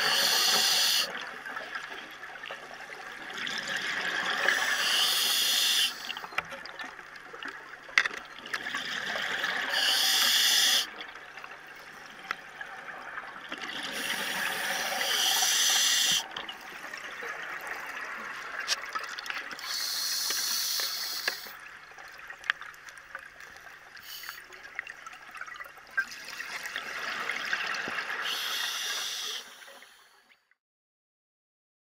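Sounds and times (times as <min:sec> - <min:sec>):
regulator inhale hiss: 0:00.0 - 0:01.1, 0:04.5 - 0:06.2, 0:09.7 - 0:10.9, 0:14.0 - 0:16.2, 0:19.6 - 0:21.6, 0:24.0 - 0:24.5, 0:28.2 - 0:30.2.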